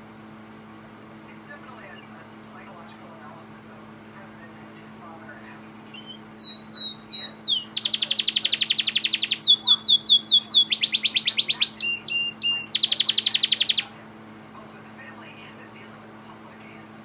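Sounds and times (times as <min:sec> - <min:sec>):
faint low hum: 0:00.0 - 0:17.0
canary singing trills: 0:05.9 - 0:14.0.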